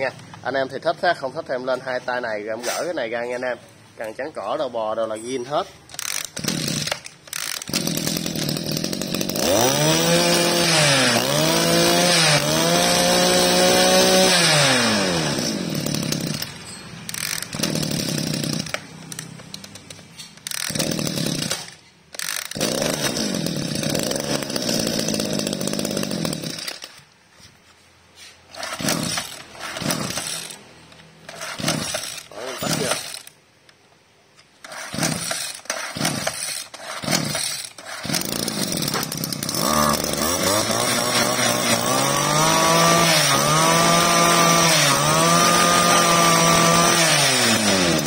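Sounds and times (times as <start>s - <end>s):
pull-starting engine: 5.9s - 27.1s, 28.5s - 33.4s, 34.6s - 48.0s
two-stroke engines revving: 6.0s - 26.7s, 28.6s - 30.6s, 31.2s - 33.3s, 34.7s - 48.0s.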